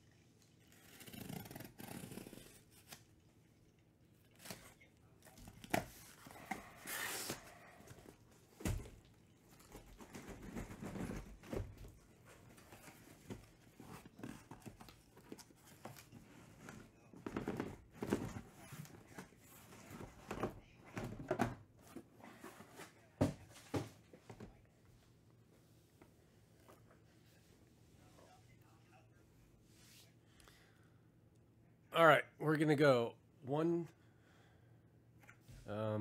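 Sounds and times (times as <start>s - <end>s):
cardboard flaps scraping and rustling: 9.6s - 20.6s
boxes knocking when set down: 22.6s - 24.5s.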